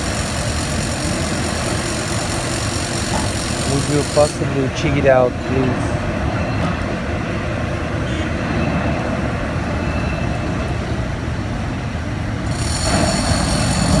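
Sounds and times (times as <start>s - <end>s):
crane machinery rumble: 0.0s - 14.0s
high multi-tone squeal: 12.5s - 14.0s.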